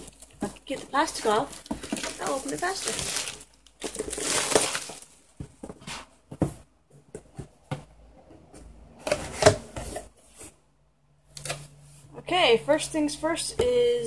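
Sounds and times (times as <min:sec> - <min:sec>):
plastic wrapping crinkling and tearing: 0:00.0 - 0:05.3.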